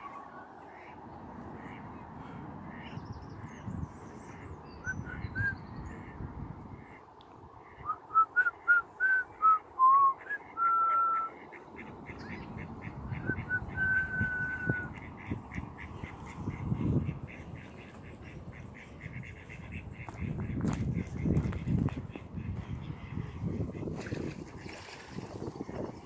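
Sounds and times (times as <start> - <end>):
person whistling notes: 8.1 - 11.3.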